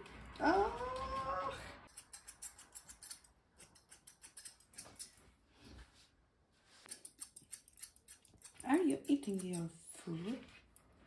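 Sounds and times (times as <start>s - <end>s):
scissors snipping fur: 0.0s - 5.2s, 6.9s - 9.9s.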